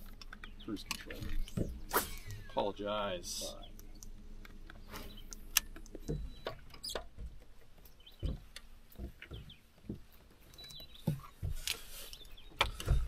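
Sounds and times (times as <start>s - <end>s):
thumps and clicks on boat deck: 5.7s - 13.0s.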